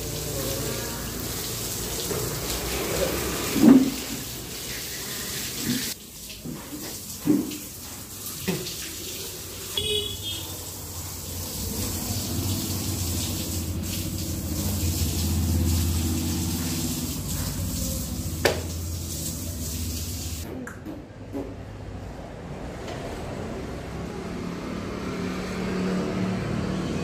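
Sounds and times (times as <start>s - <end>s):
tap water running: 0.0s - 20.4s.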